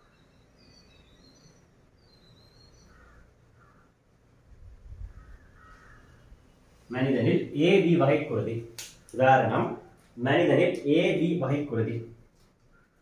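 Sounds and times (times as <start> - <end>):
small birds chirping: 0.0 - 4.2
faint crows cawing: 0.0 - 4.4, 5.0 - 6.9, 12.4 - 13.0.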